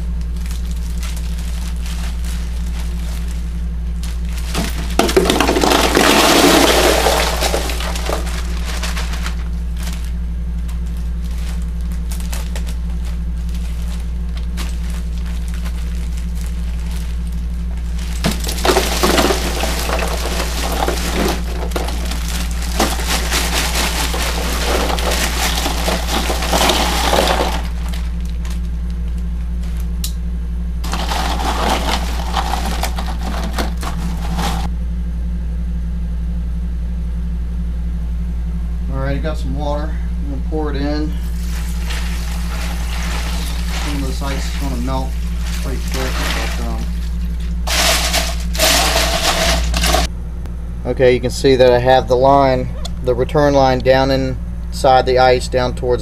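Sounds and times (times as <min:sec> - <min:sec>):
steady low hum: 0:00.0 - 0:56.0
ice cubes clattering into cooler: 0:04.0 - 0:10.1, 0:17.9 - 0:28.6, 0:30.8 - 0:34.7, 0:41.3 - 0:50.1.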